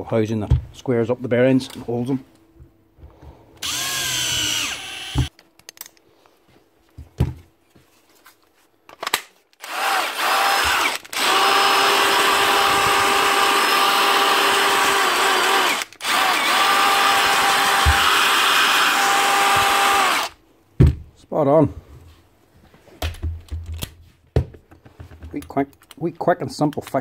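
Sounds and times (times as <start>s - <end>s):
cordless drill driving screw: 3.6s - 5.3s, 9.6s - 20.3s
impact driver whining: 3.6s - 5.3s, 9.6s - 20.4s
handling clicks and knocks: 23.0s - 27.0s.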